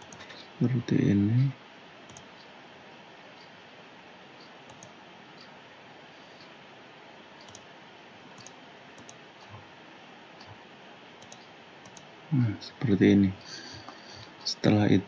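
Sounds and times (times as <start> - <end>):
computer mouse clicks: 0.0 - 0.3, 2.1 - 2.4, 4.7 - 5.0, 7.4 - 7.7, 8.4 - 9.6, 11.2 - 12.1
steady background hiss: 0.0 - 15.0.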